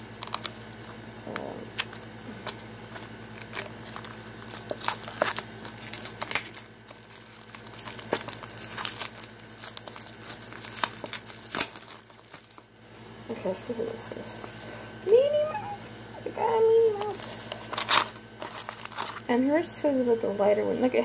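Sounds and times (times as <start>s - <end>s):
packaging crinkling and tearing: 0.2s - 12.7s, 17.0s - 19.3s.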